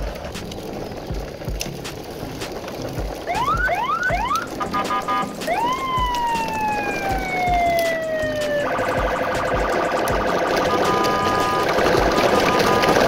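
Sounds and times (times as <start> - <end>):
electronic siren wail: 3.2 - 13.0
buzzing electronic tone pattern: 8.7 - 13.0.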